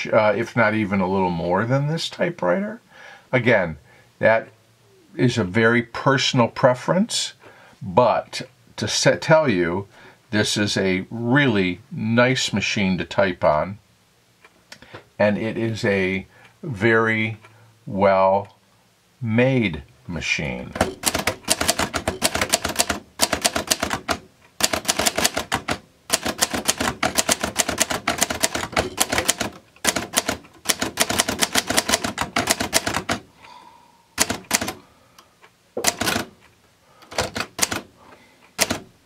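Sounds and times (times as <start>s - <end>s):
manual typewriter typing: 20.8s - 33.3s, 34.2s - 34.8s, 35.8s - 36.3s, 37.0s - 37.9s, 38.5s - 38.9s.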